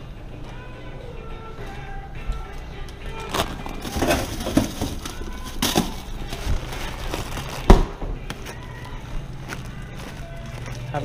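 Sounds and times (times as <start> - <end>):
handling knocks and thumps: 3.3 - 8.5.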